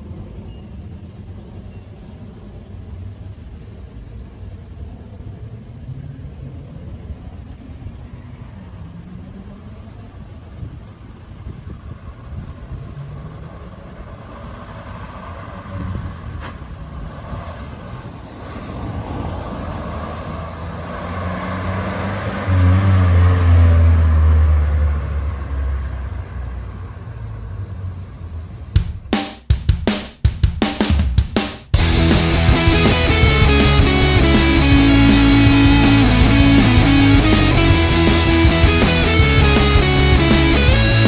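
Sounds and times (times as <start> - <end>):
van engine driving past: 11.9 - 28.7.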